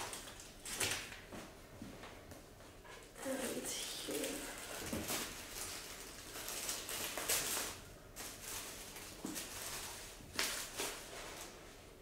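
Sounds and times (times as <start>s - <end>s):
paper rustling and crinkling: 3.3s - 11.8s.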